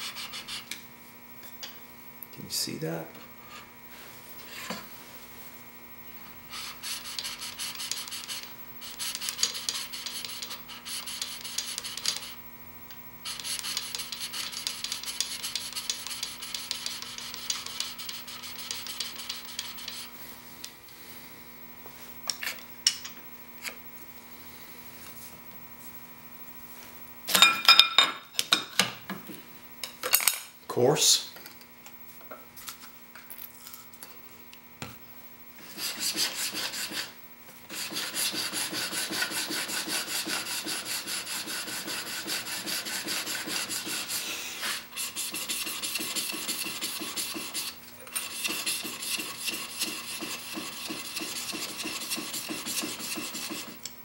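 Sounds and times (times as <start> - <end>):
chisel scraping on sharpening plate: 37.7 - 53.7.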